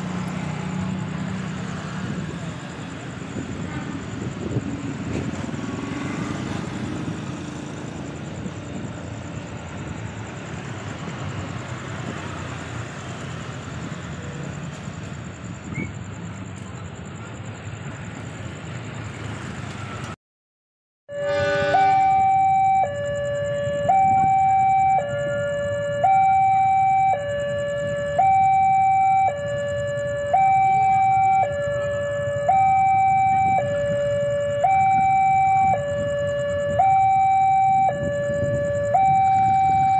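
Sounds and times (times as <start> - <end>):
two-tone electronic warning signal: 21.1 - 39.9.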